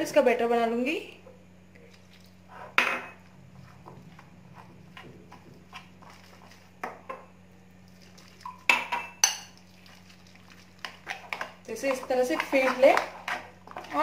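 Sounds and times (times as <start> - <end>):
low hum: 1.2 - 8.4
stirring thick batter: 3.5 - 7.1, 9.6 - 14.0
spoon clinking on glass bowl: 8.7 - 9.6.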